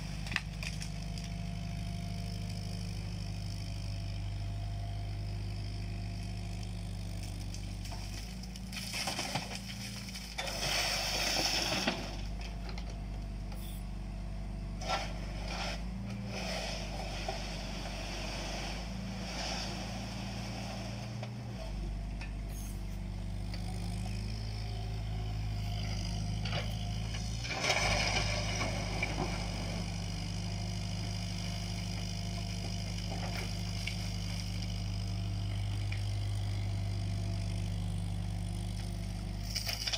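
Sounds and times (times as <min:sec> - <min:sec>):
diesel engine running: 0:00.0 - 0:39.9
bucket scraping and dumping soil: 0:08.7 - 0:12.2, 0:14.8 - 0:21.2, 0:26.4 - 0:29.8.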